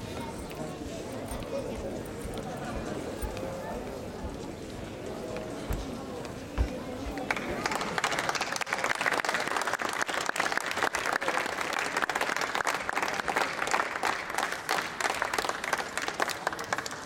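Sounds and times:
audience applauding: 7.1s - 17.0s.

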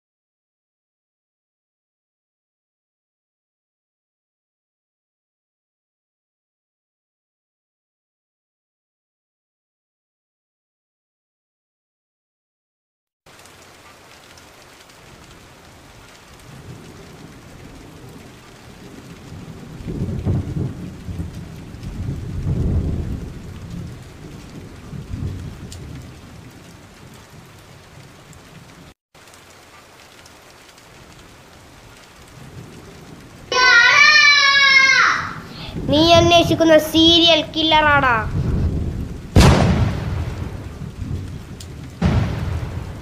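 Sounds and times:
steady rain: 13.3s - 43.0s
thunder rumbling: 15.0s - 28.9s, 30.9s - 43.0s.

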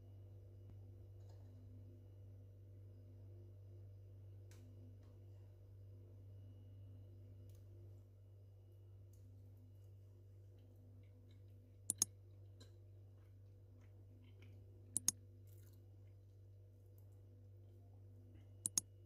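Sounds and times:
low steady hum: 0.0s - 19.0s
mouse double clicks: 11.9s - 12.1s, 14.9s - 15.2s, 18.6s - 18.9s.

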